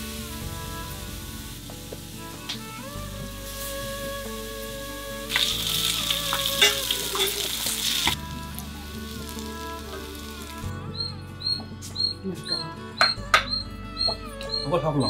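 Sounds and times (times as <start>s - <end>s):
fish frying in hot oil: 3.4s - 10.6s.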